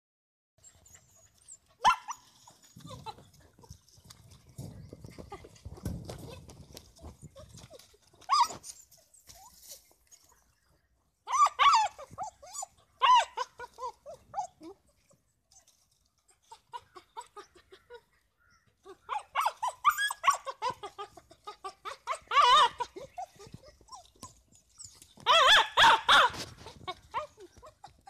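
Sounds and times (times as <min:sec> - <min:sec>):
dog whining and yelping: 0:00.6 - 0:03.3, 0:06.2 - 0:09.7, 0:11.3 - 0:28.0
dog yipping: 0:00.9 - 0:03.0, 0:07.6 - 0:09.7, 0:11.3 - 0:14.8, 0:18.9 - 0:28.0.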